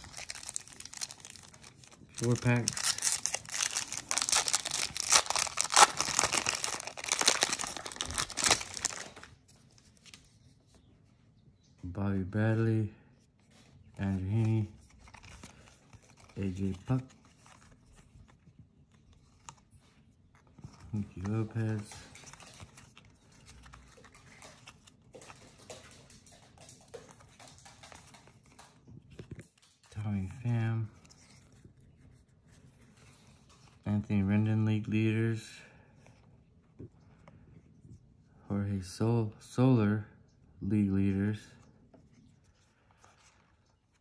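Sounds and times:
foil wrapper crinkling and tearing: 0:00.0 - 0:09.3
cards clicking and rustling: 0:00.0 - 0:10.2, 0:14.2 - 0:19.7, 0:20.4 - 0:29.8.

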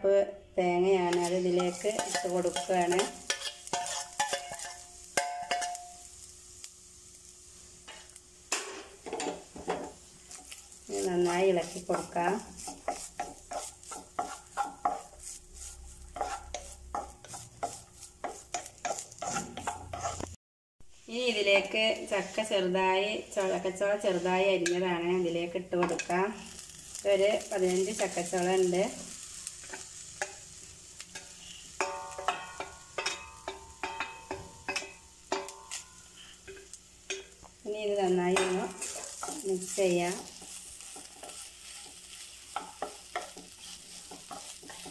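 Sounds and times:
faint sizzle: 0:00.0 - 0:44.9
wooden spatula scraping pan: 0:01.1 - 0:04.8, 0:09.2 - 0:20.4, 0:38.4 - 0:44.9
metal utensil clinking on pan: 0:01.1 - 0:06.0, 0:31.1 - 0:37.4, 0:38.3 - 0:39.5.

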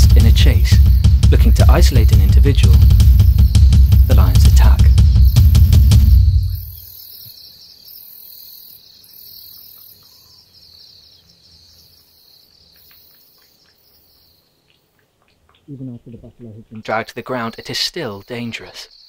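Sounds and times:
crickets chirring: 0:00.0 - 0:14.9, 0:16.8 - 0:19.0
faint ticks: 0:12.3 - 0:15.7.

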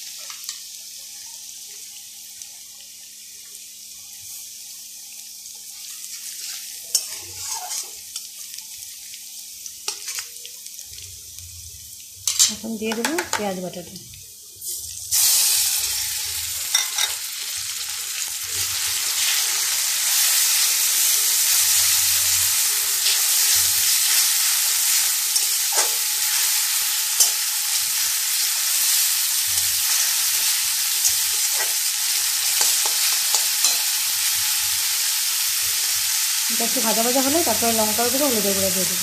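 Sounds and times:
onion paste sizzling in hot oil: 0:00.0 - 0:39.0
metal spatula scraping a pan: 0:06.1 - 0:08.3, 0:28.8 - 0:34.4.

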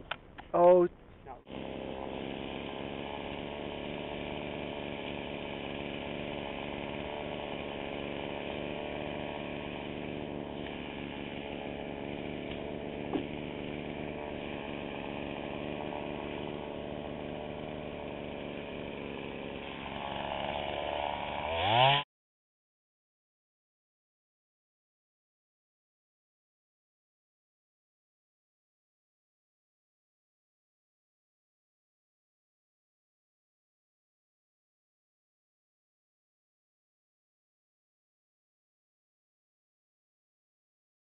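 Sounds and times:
chainsaw idling and revving: 0:01.3 - 0:22.1.

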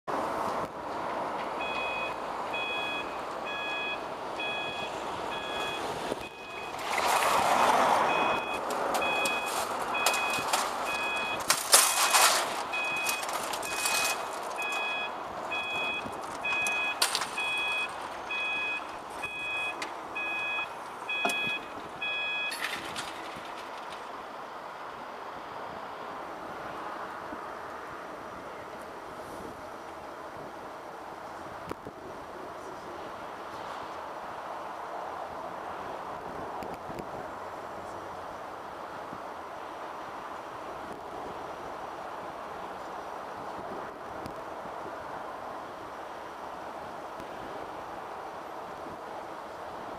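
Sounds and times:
road traffic passing: 0:00.1 - 0:49.9
level crossing alarm beeping: 0:01.6 - 0:06.9, 0:08.1 - 0:23.0.

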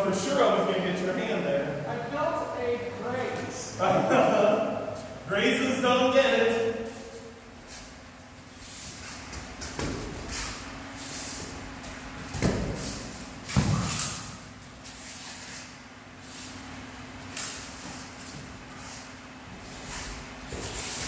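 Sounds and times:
steady hum: 0:00.0 - 0:21.0
sharp knocks and scuffs: 0:08.8 - 0:10.7.

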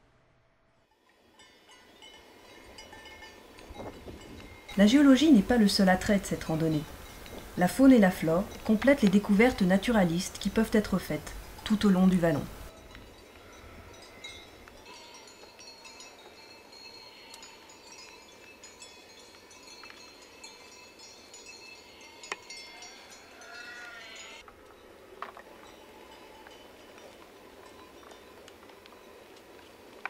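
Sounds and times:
faint high ringing: 0:11.2 - 0:29.4.

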